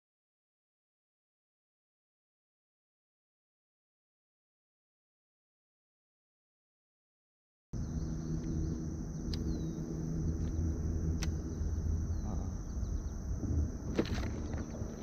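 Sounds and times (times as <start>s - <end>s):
insects droning: 7.8s - 15.0s
low rumble: 7.8s - 15.0s
sharp clicks: 10.4s - 11.4s.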